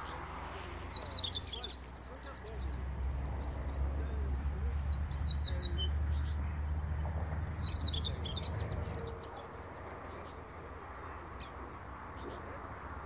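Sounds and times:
bird singing high chirps: 0.0s - 3.9s, 4.6s - 10.4s.

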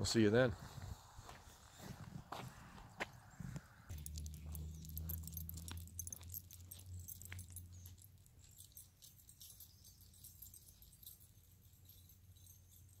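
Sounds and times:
light footsteps on pavement: 0.6s - 8.7s
dog collar tags jingling: 3.9s - 13.0s.

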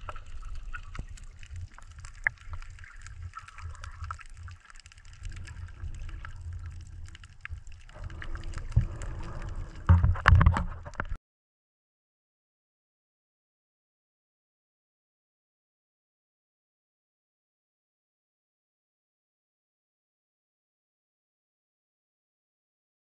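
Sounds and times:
faint clicks and crackles: 0.0s - 11.2s
underwater rumble of moving water: 0.0s - 11.2s.

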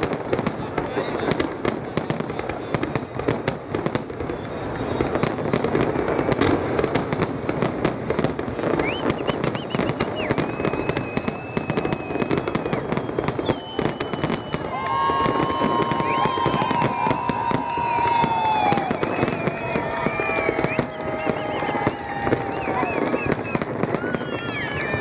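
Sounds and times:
fireworks bursts and crackling bangs: 0.0s - 25.0s
high steady whistle: 8.6s - 25.0s.

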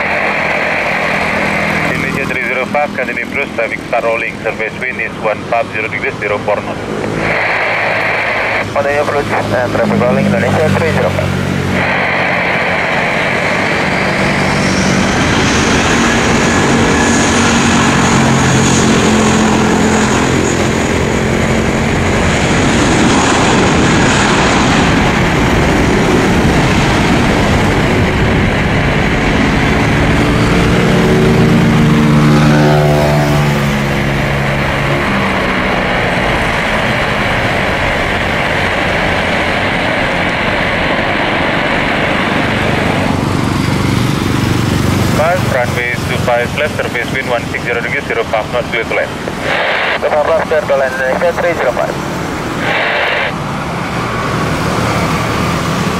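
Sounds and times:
jet engines at takeoff power: 0.0s - 55.9s.

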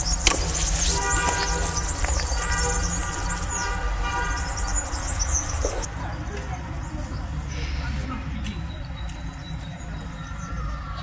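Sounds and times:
steady horn-like tone: 0.9s - 4.8s.

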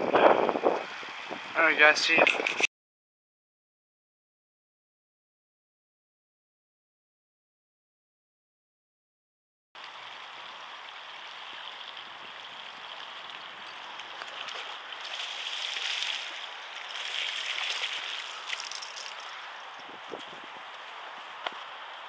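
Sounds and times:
water sloshing and splashing: 9.8s - 21.0s.

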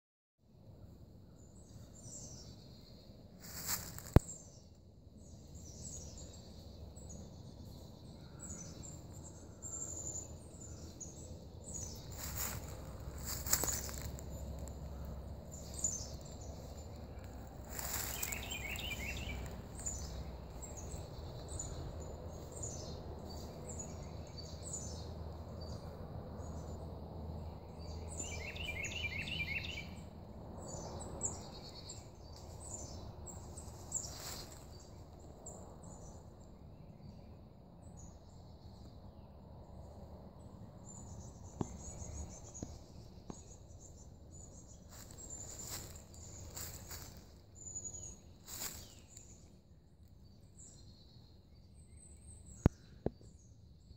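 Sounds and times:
trilled bird song: 1.2s - 53.9s
birds calling and chirping: 1.3s - 26.8s, 27.5s - 39.4s, 40.4s - 49.6s
low rumble: 8.8s - 28.2s.

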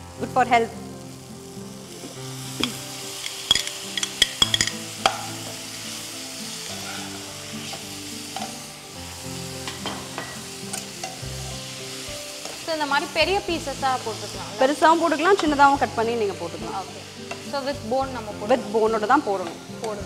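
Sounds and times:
chicken sizzling in oil: 0.0s - 20.0s
metal utensils clinking on pan: 2.6s - 5.6s, 6.6s - 8.6s, 9.6s - 11.2s, 15.2s - 15.6s.

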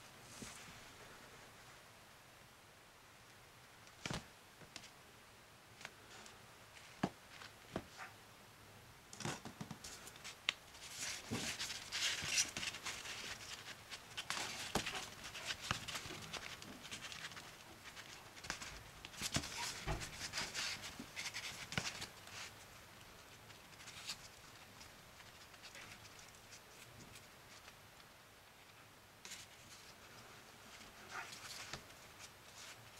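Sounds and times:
bread rustling and crackling: 9.2s - 27.8s.

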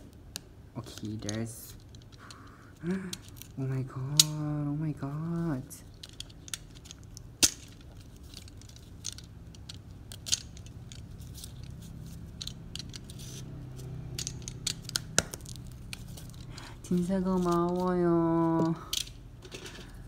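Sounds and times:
packaging crackling and rustling: 5.1s - 18.8s.

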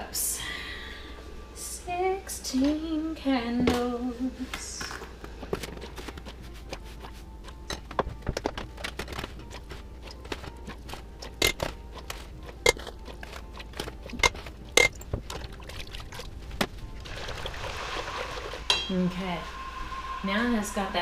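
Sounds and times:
spoon scraping in steel pot: 10.7s - 13.1s
ringing metallic clinks on pot: 18.7s - 19.0s.

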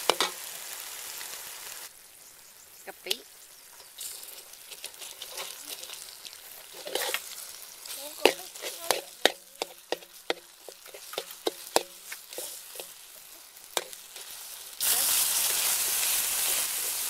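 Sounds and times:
food sizzling in a wok: 0.0s - 17.0s
metal spatula scraping a wok: 3.8s - 17.0s.

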